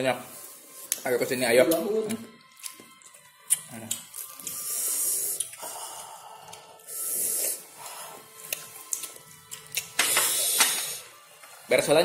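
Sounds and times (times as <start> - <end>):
mouth clicks: 3.4 - 4.6, 5.3 - 5.7
man hissing breaths through teeth: 4.5 - 8.4, 10.0 - 11.1.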